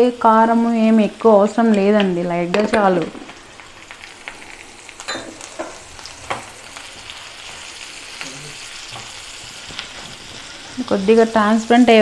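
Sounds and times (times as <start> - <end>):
onions sizzling in oil: 0.0 - 12.0
spatula stirring in pan: 5.5 - 12.0.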